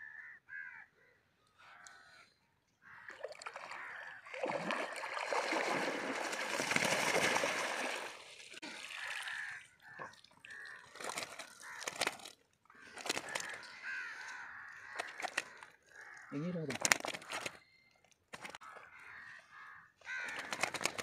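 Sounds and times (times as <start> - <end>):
water splashing and sloshing: 3.0 - 13.6
wet net clicks and rustles: 10.9 - 13.6, 14.9 - 15.7, 16.7 - 18.6, 20.3 - 21.0.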